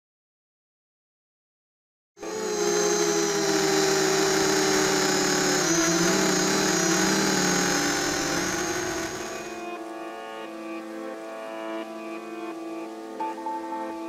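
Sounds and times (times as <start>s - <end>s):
quadcopter motors buzzing: 2.2s - 9.6s.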